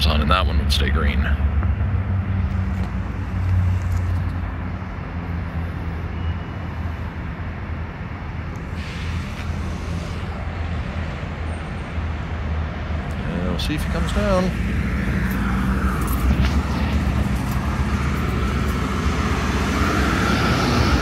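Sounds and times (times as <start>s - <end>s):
road traffic rumble: 0.0s - 21.0s
vehicle passing: 8.7s - 21.0s.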